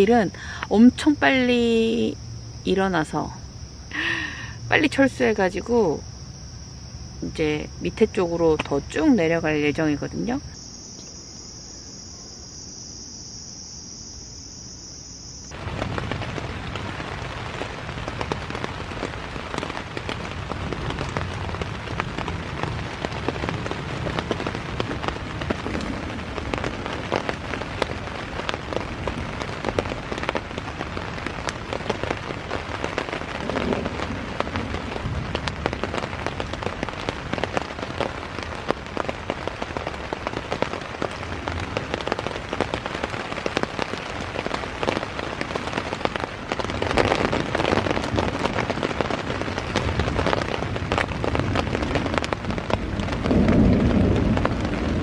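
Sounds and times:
night insects chorus: 0.0s - 55.0s
heavy rain on tent: 3.7s - 4.9s, 15.5s - 55.0s.

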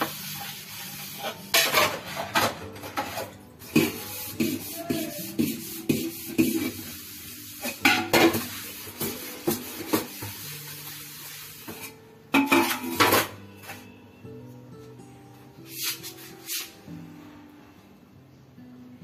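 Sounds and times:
steel plates and bowls clattering: 0.4s - 4.8s, 7.6s - 10.3s, 11.7s - 13.4s.

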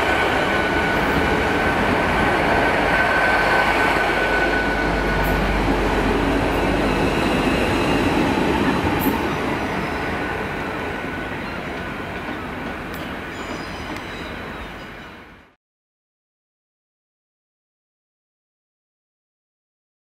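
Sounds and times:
train rumbling past: 0.0s - 15.6s.

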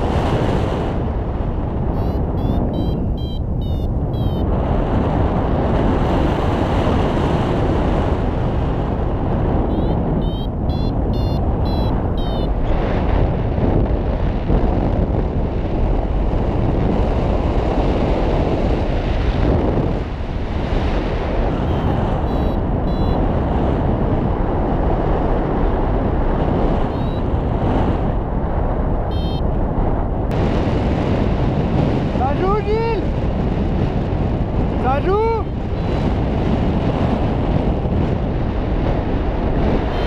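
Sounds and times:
wind rushing past microphone: 0.0s - 40.0s
faint short electronic beeps: 2.0s - 4.5s, 9.7s - 12.6s, 21.6s - 23.2s, 26.9s - 27.2s, 29.1s - 29.4s.

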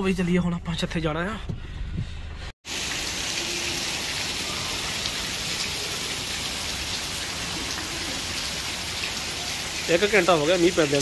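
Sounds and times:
rain falling steadily: 2.6s - 11.0s.

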